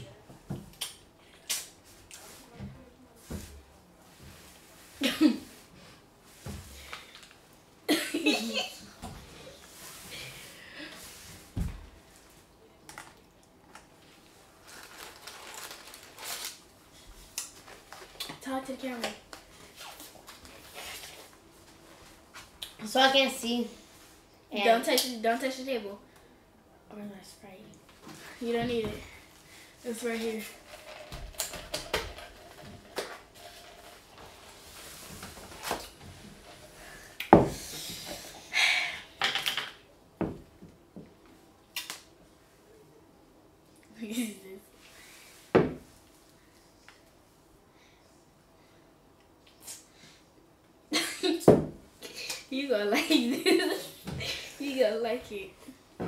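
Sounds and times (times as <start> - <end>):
food packaging rustling: 14.5 - 16.7.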